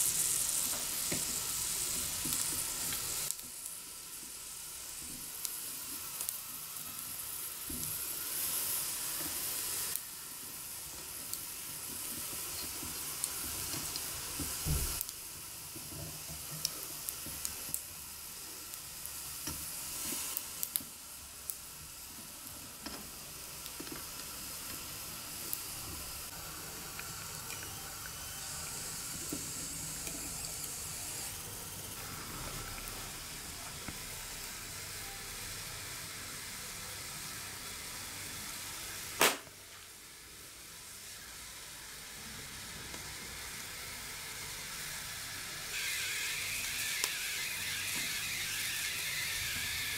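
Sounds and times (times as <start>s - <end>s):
chestnuts sizzling on grill: 0.0s - 49.9s
sharp pops and crackles: 39.2s - 39.6s.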